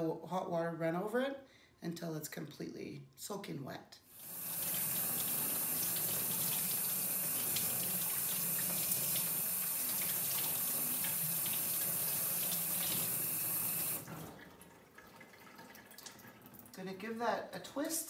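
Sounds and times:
water running from faucet: 0:04.1 - 0:16.8.

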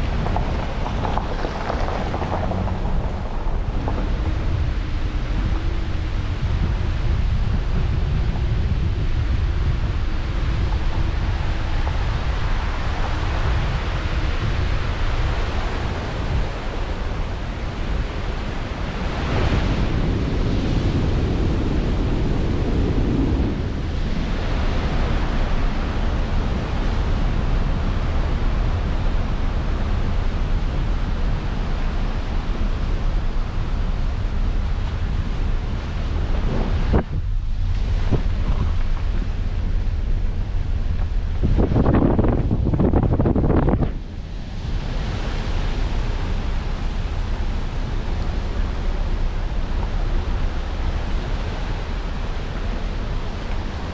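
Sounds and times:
vehicle rolling along road: 0:00.0 - 0:53.9
wind buffeting microphone: 0:00.0 - 0:53.9.

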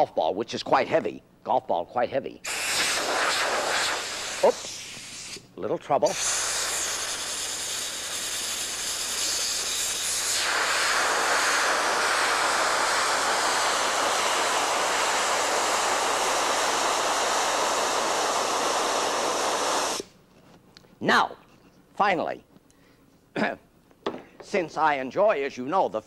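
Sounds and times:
compressed air hissing: 0:02.4 - 0:20.2.

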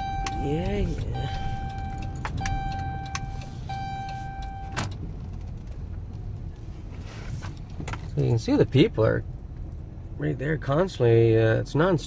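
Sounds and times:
warning chime beeping: 0:00.0 - 0:04.8
road noise: 0:00.0 - 0:12.0
van engine rumble: 0:00.0 - 0:12.0.

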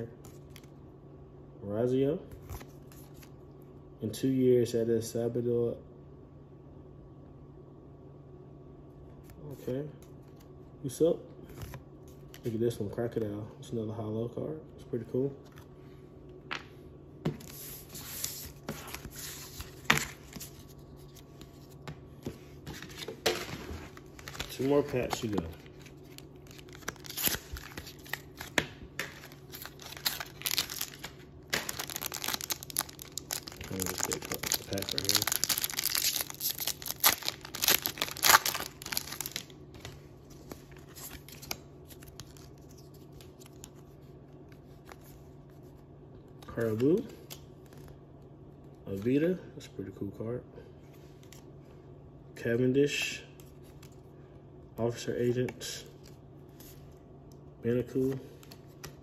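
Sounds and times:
cards and wrappers rustling: 0:17.4 - 0:45.7
foil pack crinkling and tearing: 0:23.8 - 0:43.7.

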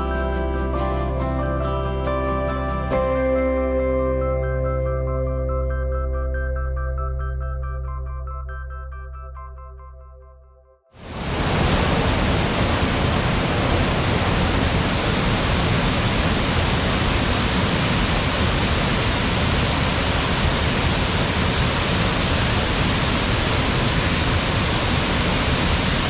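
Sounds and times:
waterfall rushing: 0:11.0 - 0:26.0.

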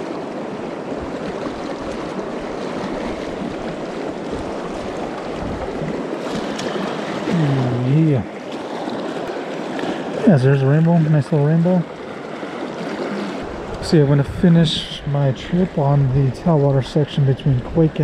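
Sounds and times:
fast-flowing river water: 0:00.0 - 0:18.0
man's wordless voice: 0:07.3 - 0:08.3, 0:10.2 - 0:11.9, 0:13.8 - 0:18.0.

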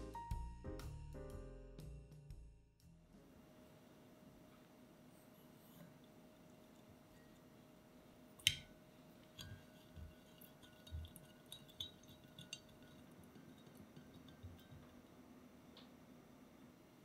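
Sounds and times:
spatula tapping in jug: 0:08.4 - 0:15.1.

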